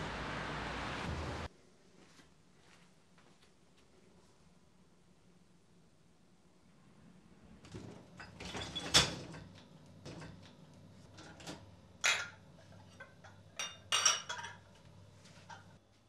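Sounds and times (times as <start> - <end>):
dishwasher rack rattling: 7.7 - 10.5
dishes clinking: 8.1 - 10.5, 11.1 - 14.8.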